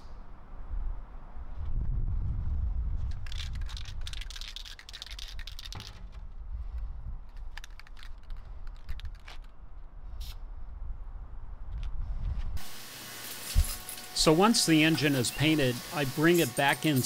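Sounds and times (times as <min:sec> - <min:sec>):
spray paint can rattling: 0:03.1 - 0:06.2, 0:07.3 - 0:09.5.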